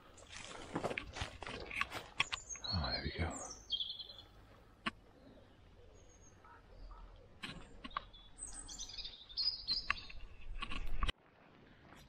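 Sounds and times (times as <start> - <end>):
small birds singing: 1.7 - 11.0.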